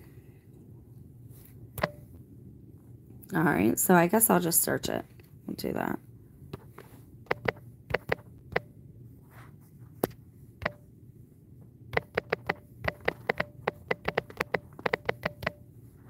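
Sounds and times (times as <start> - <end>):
taps on smartphone keyboard: 6.6 - 8.7, 10.0 - 10.8, 11.9 - 15.6.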